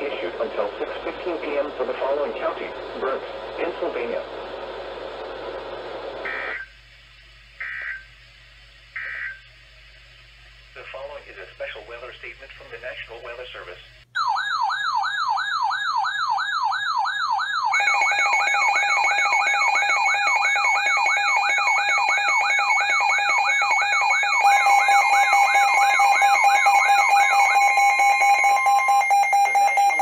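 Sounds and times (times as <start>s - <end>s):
steady pulsing alarm tone: 7.5s - 8.3s, 8.9s - 9.8s, 13.9s - 30.0s
higher steady alarm tone: 13.9s - 30.0s
falling siren-like alarm sweep: 14.2s - 30.0s.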